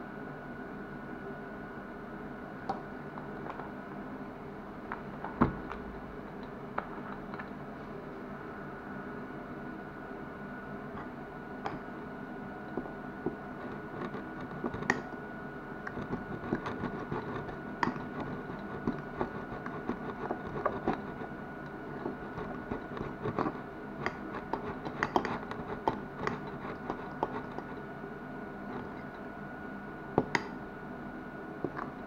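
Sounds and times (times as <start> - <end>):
utensil stirring batter in glass bowl: 15.9 - 27.9.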